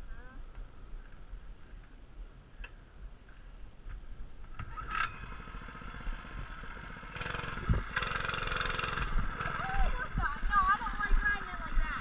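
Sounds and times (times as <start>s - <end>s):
small engine starting and idling: 4.4s - 10.2s.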